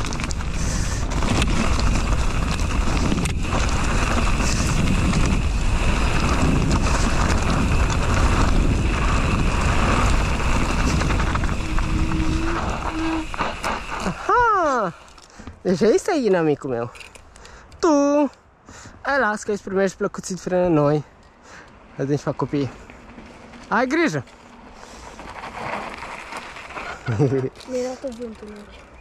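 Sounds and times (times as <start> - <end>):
wind buffeting microphone: 0.0 - 14.8
bike tyres rolling on dirt: 0.0 - 16.9, 19.2 - 29.0.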